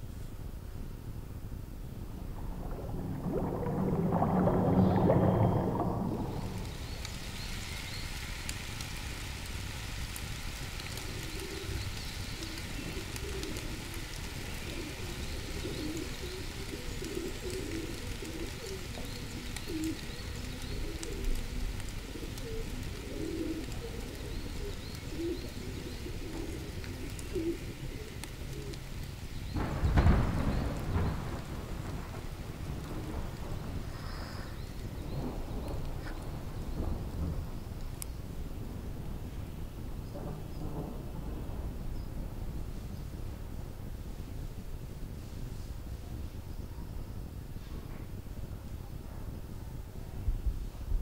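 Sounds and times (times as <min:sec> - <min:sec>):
steady hiss: 0:00.0 - 0:51.0
low rumble: 0:01.7 - 0:07.5
pigeons cooing: 0:11.1 - 0:28.9.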